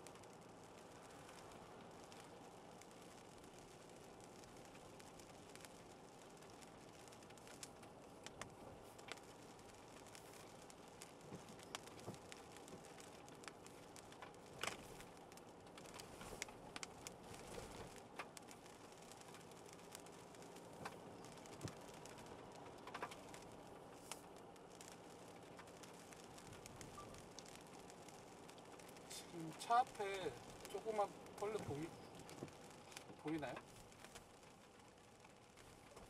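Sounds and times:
raindrops ticking on a car: 0:00.0 - 0:36.0.

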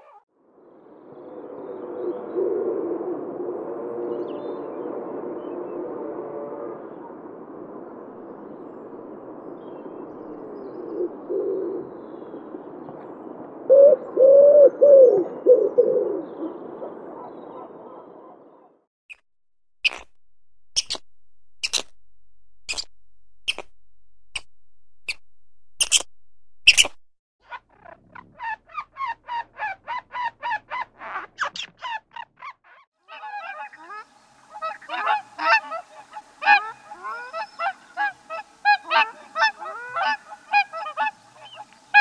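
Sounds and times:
pigeons cooing: 0:01.7 - 0:03.1, 0:10.3 - 0:12.0, 0:13.7 - 0:18.4
short sharp high clicks: 0:22.6 - 0:27.0.

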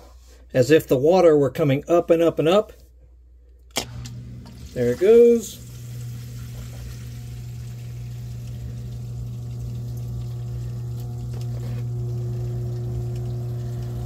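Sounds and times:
sump pump humming: 0:03.7 - 0:14.0
water churning: 0:03.9 - 0:14.0.

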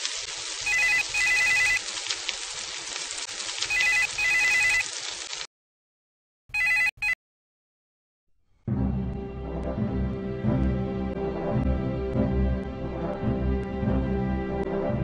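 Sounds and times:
telephone double ringing: 0:00.7 - 0:01.8, 0:03.8 - 0:04.8, 0:06.6 - 0:07.2.

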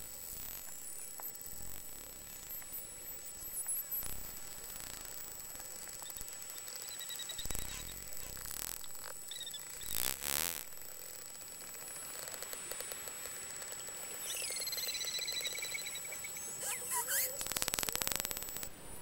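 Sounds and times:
buzzing click bursts: 0:00.6 - 0:18.7
dolphin clicks: 0:11.6 - 0:18.7
dolphin whistles: 0:14.2 - 0:19.0.

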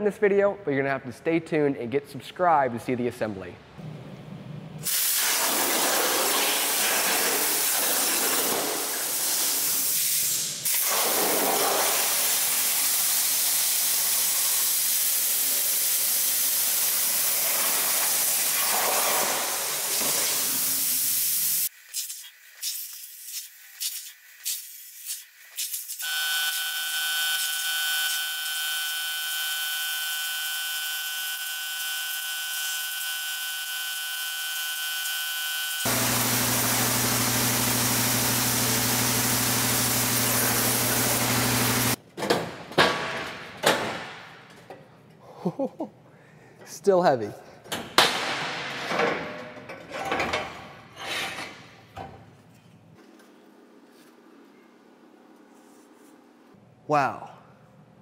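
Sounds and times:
plasma torch hissing: 0:04.8 - 0:26.0, 0:35.8 - 0:42.0.

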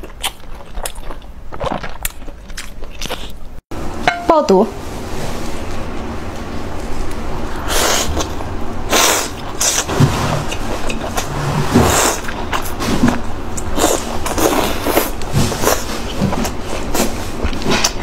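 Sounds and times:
close chewing with wet mouth sounds: 0:00.0 - 0:03.6, 0:10.5 - 0:18.0.

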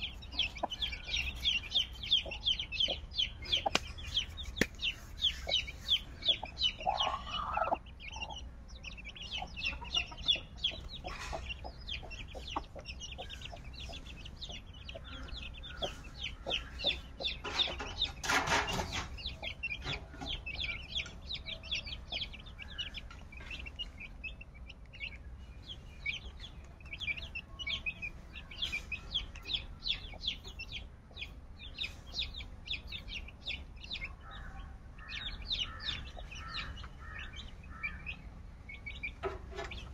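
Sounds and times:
chicks peeping: 0:00.0 - 0:39.9
hen clucking: 0:00.0 - 0:39.9.

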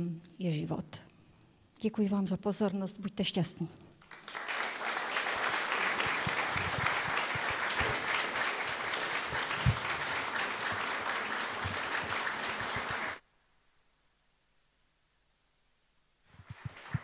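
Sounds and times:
audience applauding: 0:04.0 - 0:13.2, 0:16.4 - 0:17.0.

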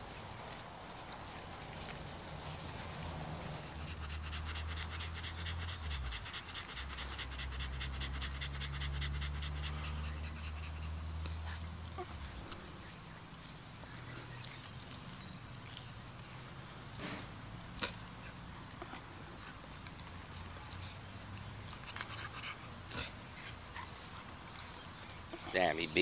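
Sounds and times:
dog panting: 0:02.6 - 0:12.6, 0:17.8 - 0:26.0.

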